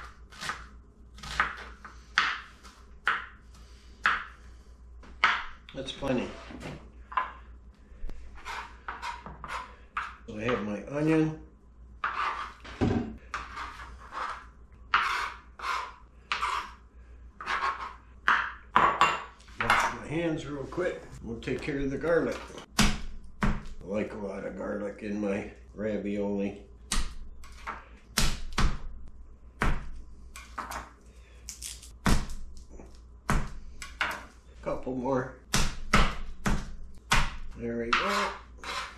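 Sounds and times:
knife scraping cutting board: 0:08.3 - 0:10.6, 0:12.0 - 0:16.8, 0:17.4 - 0:18.0, 0:37.9 - 0:38.9.

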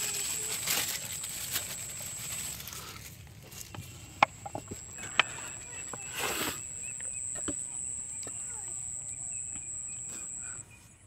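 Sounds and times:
sharp clicks: 0:03.6 - 0:10.4.

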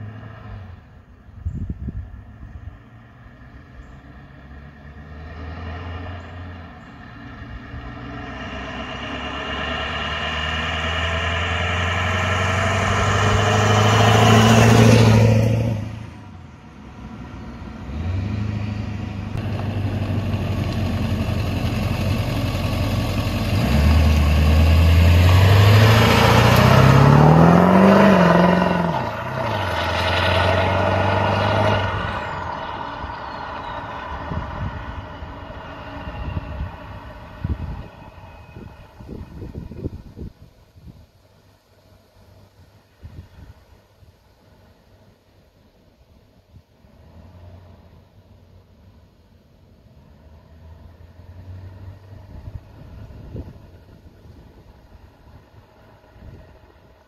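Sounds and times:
turbodiesel truck accelerating past: 0:01.9 - 0:40.4, 0:50.0 - 0:57.0.

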